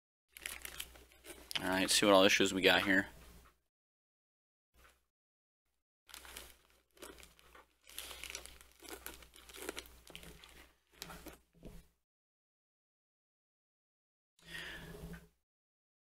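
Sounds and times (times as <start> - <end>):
plastic bag crinkling: 0.3 - 2.8, 6.1 - 11.4.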